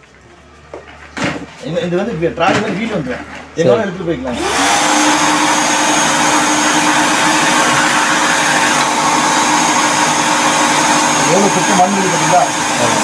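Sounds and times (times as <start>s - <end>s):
vacuum cleaner running: 4.2s - 13.0s.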